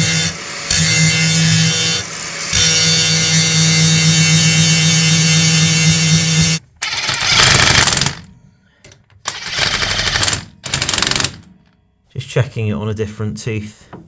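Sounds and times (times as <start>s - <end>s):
angle grinder cutting steel: 0.0s - 8.2s
impact driver hammering: 6.8s - 8.3s, 9.2s - 11.6s.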